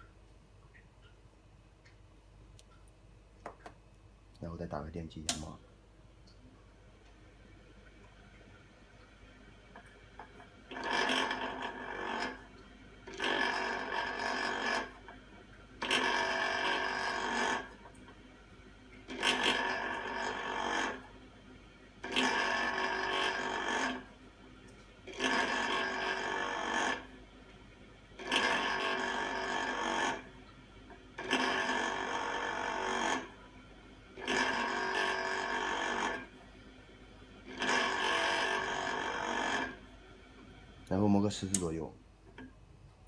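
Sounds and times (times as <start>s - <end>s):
lapping machine grinding rasp: 10.7s - 12.5s, 13.1s - 15.0s, 15.8s - 17.8s, 19.1s - 21.1s, 22.0s - 24.1s, 25.1s - 27.1s, 28.2s - 30.3s, 31.1s - 33.4s, 34.2s - 36.3s, 37.4s - 39.8s.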